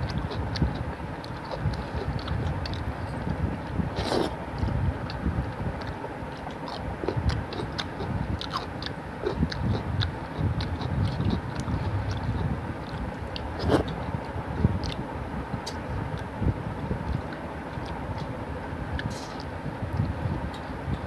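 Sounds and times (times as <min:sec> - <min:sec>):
fingers squishing food: 0:00.0 - 0:03.0, 0:03.6 - 0:16.4
chewing: 0:00.0 - 0:15.0, 0:17.0 - 0:18.4
steady low rumble: 0:00.0 - 0:21.0.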